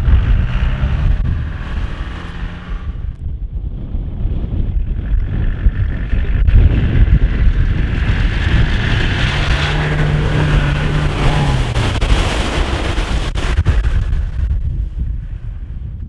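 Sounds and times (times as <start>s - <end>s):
off-road vehicle engine pulling: 0.0s - 3.2s, 4.3s - 14.5s
wind buffeting microphone: 0.0s - 16.0s
water and mud splashing: 6.5s - 14.6s.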